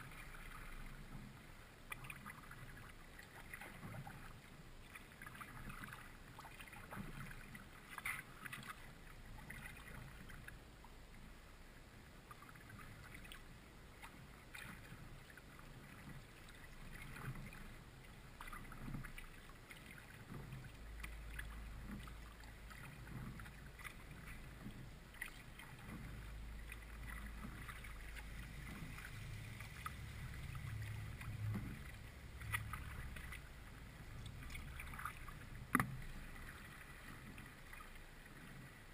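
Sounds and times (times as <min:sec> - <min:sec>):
kayak paddle splashing water: 0:00.0 - 0:10.6, 0:12.2 - 0:38.9
low rumble: 0:25.8 - 0:37.3.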